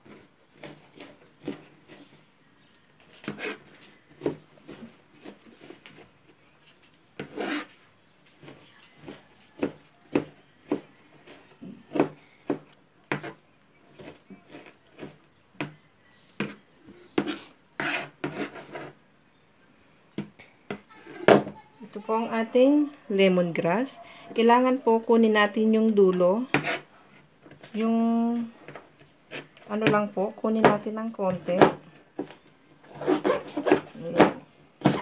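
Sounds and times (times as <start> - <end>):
knife scraping cutting board: 3.1 - 5.9, 7.2 - 7.8, 16.4 - 19.0, 26.5 - 27.6, 28.6 - 30.0, 32.8 - 34.3
knife chopping on plastic board: 9.0 - 15.8, 16.4 - 16.6, 17.2 - 18.9, 26.5 - 26.8, 28.7 - 32.3.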